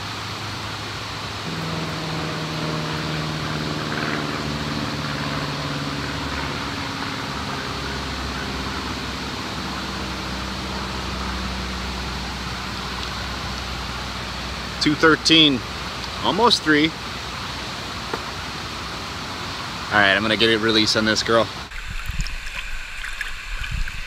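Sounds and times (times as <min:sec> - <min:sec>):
low steady hum: 0:00.0 - 0:14.8
river water rushing: 0:00.0 - 0:20.2, 0:21.5 - 0:24.0.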